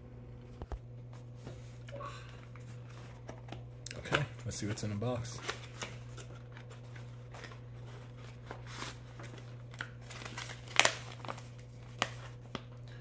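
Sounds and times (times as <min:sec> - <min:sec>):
cardboard and paper rustling: 0:02.6 - 0:12.7.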